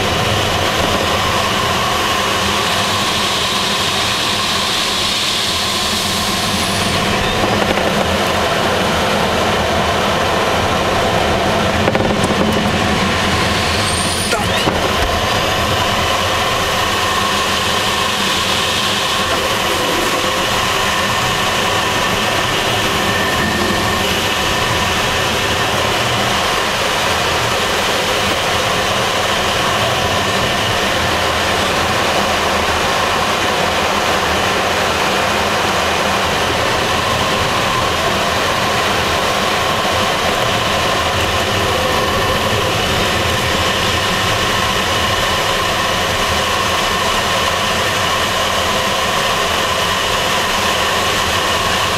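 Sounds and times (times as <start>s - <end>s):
air rushing past glider canopy: 4.2s - 30.7s.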